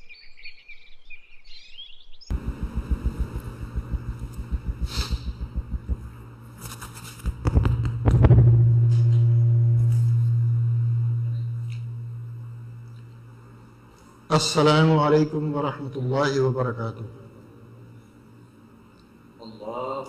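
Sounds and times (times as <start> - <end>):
low fluttering: 2.3 - 13.9
low electrical hum: 2.3 - 20.0
rubbing and knocks on microphone: 2.4 - 9.2.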